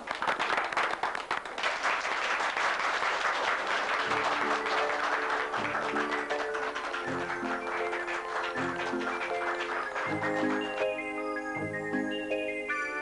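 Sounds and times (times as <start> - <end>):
audience applauding: 0.0 - 11.4
music with plucked notes: 5.9 - 12.8.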